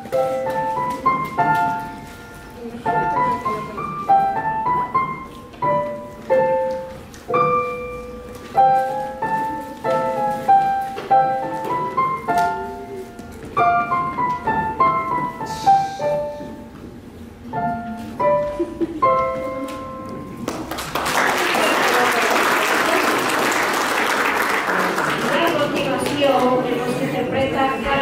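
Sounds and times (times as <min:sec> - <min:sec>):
solo piano playing slow melody: 0:00.0 - 0:20.7.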